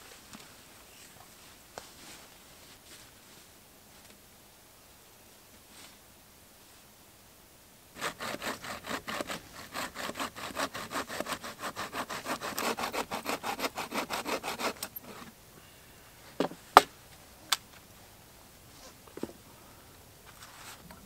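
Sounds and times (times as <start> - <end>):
saw cutting branch: 8.0 - 15.3.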